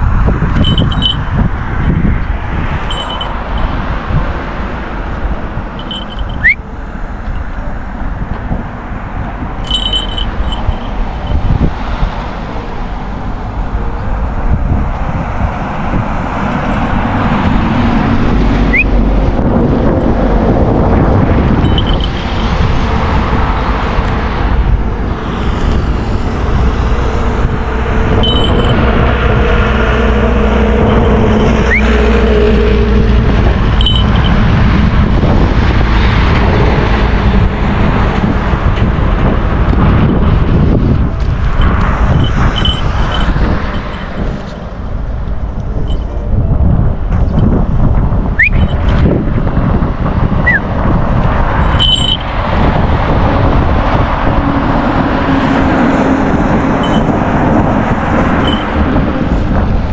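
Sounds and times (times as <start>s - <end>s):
road traffic rumble: 0.0s - 59.9s
high chirp: 5.9s - 6.6s, 18.7s - 19.0s, 48.4s - 48.8s.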